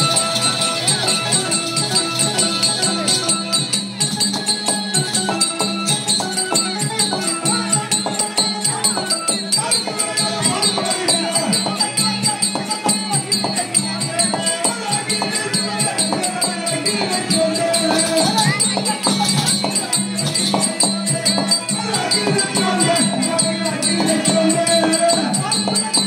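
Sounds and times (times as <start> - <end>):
folk melody: 0.0 - 11.8
metallic jingle: 0.0 - 26.0
steady drumming: 0.0 - 26.0.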